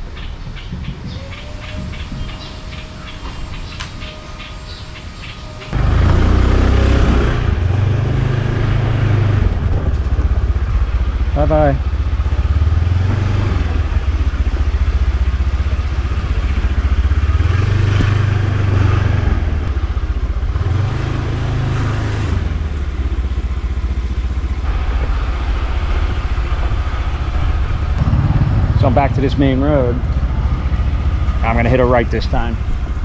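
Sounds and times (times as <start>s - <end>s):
road noise: 0.0s - 33.0s
motor scooter engine running: 5.7s - 21.6s, 22.5s - 33.0s.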